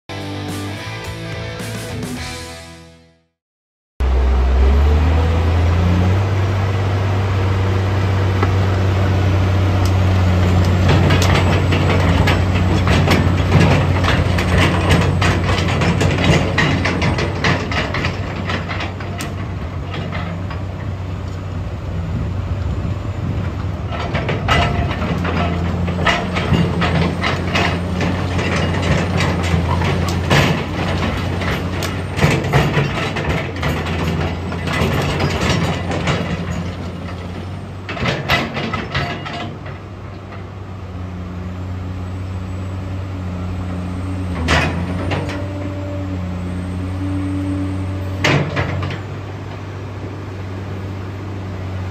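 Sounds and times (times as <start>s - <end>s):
excavator diesel engine running: 4.0s - 51.9s.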